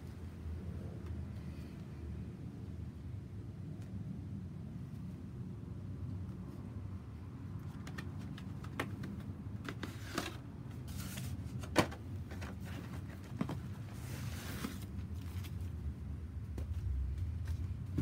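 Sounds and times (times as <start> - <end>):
steady low rumble: 0.0 - 7.6, 15.0 - 18.0.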